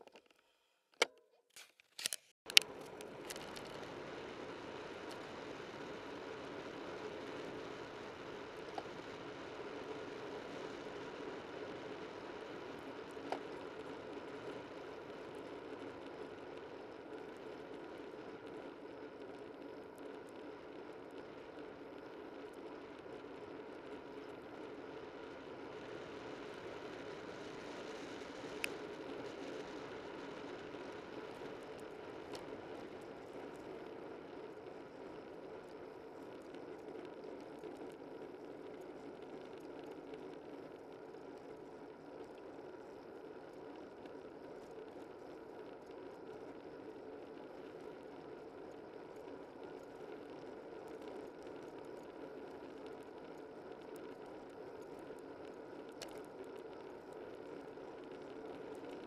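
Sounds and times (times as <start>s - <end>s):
light ticks: 47.2s - 59.0s.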